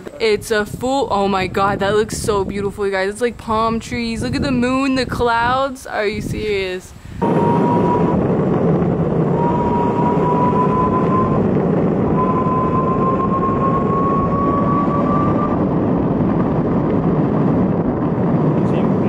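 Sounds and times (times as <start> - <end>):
skateboard wheels rolling: 7.3 - 19.0.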